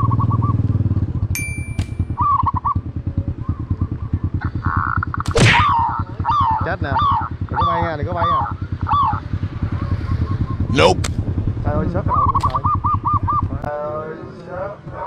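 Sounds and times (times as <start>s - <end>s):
motorcycle engine putter: 1.4s - 2.2s
high steady tone: 1.4s - 2.3s.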